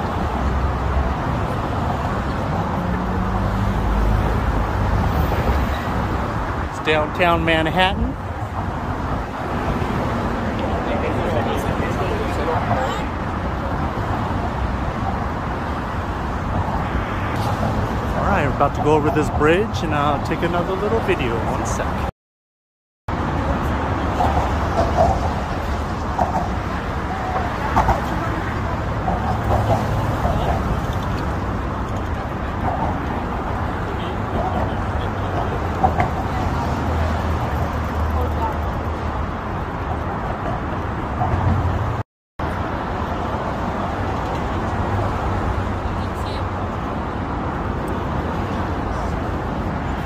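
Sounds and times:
rumble of passing cars: 0.0 - 22.1, 23.1 - 50.0.

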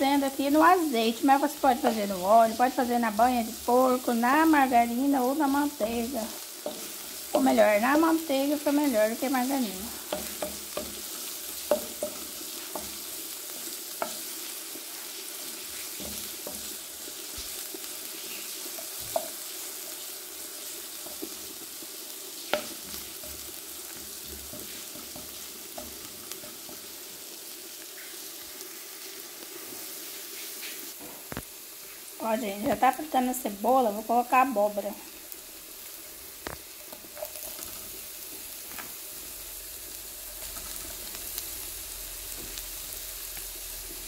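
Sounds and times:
onion sizzling in frying pan: 0.0 - 44.0
spatula knocking against pan: 10.1 - 11.0, 11.7 - 13.0.

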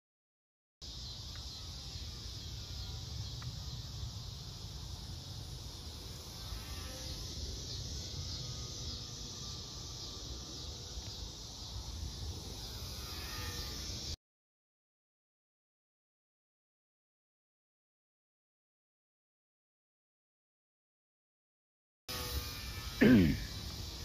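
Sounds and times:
high-pitched insect buzz: 0.8 - 14.2, 22.1 - 24.0.

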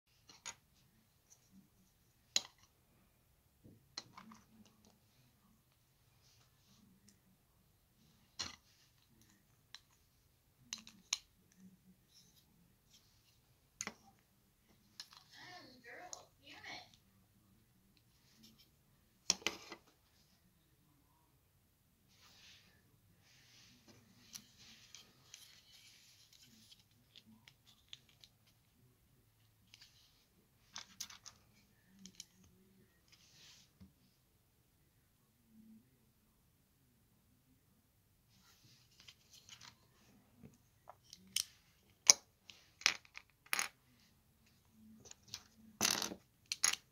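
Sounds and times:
plastic bricks clicking: 45.3 - 46.9.

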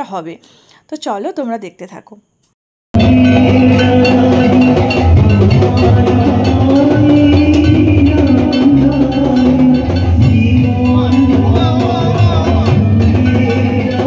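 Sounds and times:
loud music with drum beat: 3.0 - 14.0.

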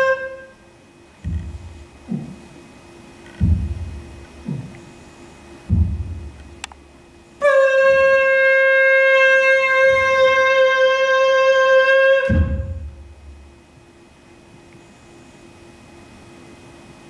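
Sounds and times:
steady horn-like note: 0.0 - 0.7, 7.4 - 13.5
low thump: 1.2 - 2.4, 3.4 - 4.8, 5.7 - 6.6, 12.3 - 13.5.

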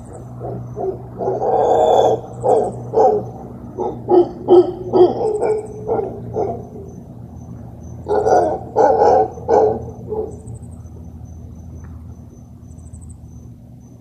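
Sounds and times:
howler monkey barking calls: 0.0 - 11.2.

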